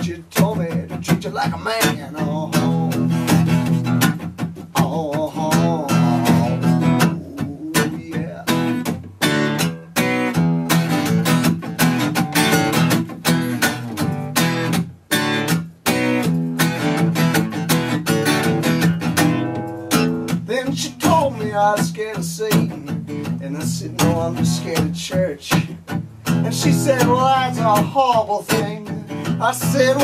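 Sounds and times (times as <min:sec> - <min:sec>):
acoustic guitar strumming: 0:00.0 - 0:30.0.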